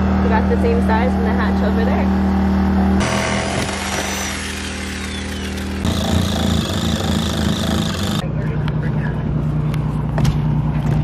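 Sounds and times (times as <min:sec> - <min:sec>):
reciprocating saw cutting fiberglass: 0:03.0 - 0:08.2.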